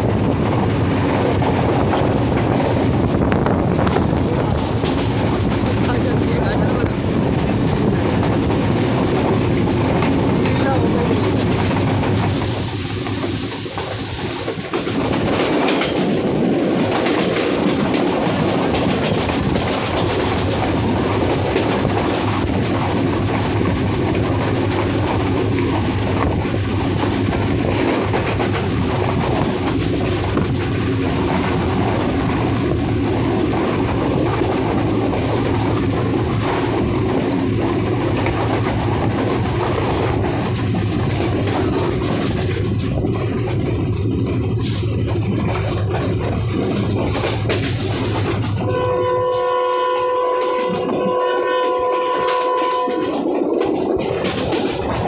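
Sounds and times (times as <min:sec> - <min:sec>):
rushing air: 0:00.0 - 0:48.7
train wheels rumbling on rails: 0:00.0 - 0:55.0
loud hiss: 0:12.2 - 0:14.6.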